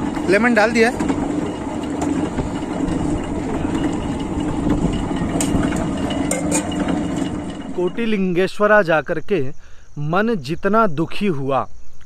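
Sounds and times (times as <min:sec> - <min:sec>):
juice crusher motor humming: 0:00.0 - 0:08.4.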